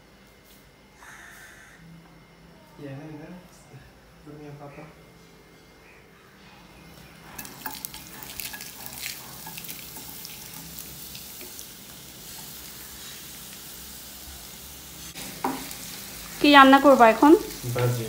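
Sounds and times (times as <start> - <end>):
spoon scraping against pan: 7.3 - 13.3
food sizzling in hot oil: 7.4 - 18.0.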